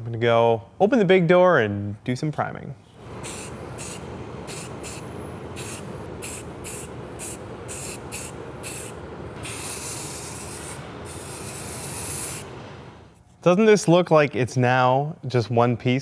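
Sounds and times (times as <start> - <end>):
aerosol spray can hissing: 3.0 - 13.2.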